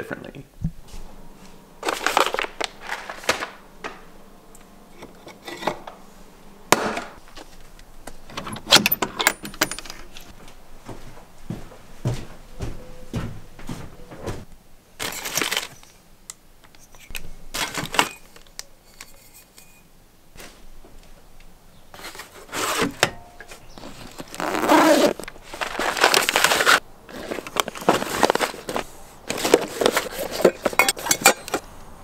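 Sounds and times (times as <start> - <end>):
bag fabric scraping rustle: 0.9 - 3.6, 23.6 - 30.8
clinks and knocks of bottles and cups: 29.8 - 31.6.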